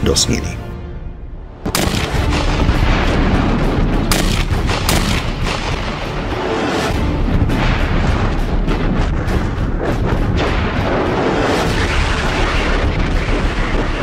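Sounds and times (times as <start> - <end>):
artillery shells exploding: 7.4 - 14.0.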